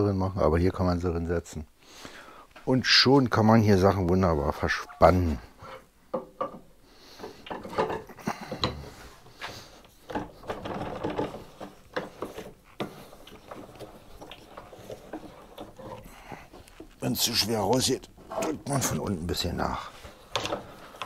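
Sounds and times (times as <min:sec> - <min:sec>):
vise being worked: 0:05.6 - 0:17.5
bench dogs knocking and scraping: 0:05.6 - 0:21.0.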